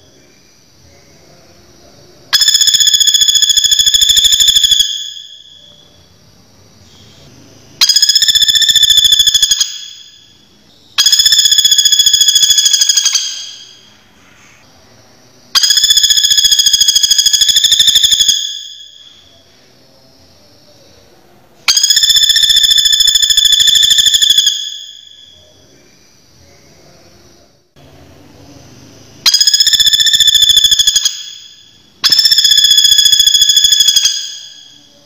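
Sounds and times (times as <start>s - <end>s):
woodpecker rattling trills: 7.8s - 10.2s, 11.0s - 13.8s, 29.3s - 34.7s.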